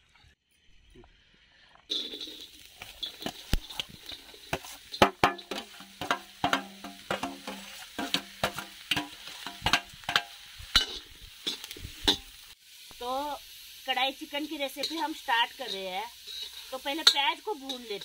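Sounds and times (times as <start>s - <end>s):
steel bowl and ladle clanking on pan: 1.9s - 12.4s, 14.8s - 18.0s
onions sizzling in a pan: 1.9s - 18.0s.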